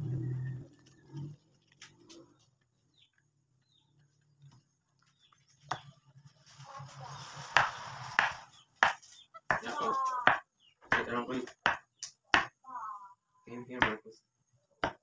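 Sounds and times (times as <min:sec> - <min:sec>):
rustling scrape: 0:06.1 - 0:09.3.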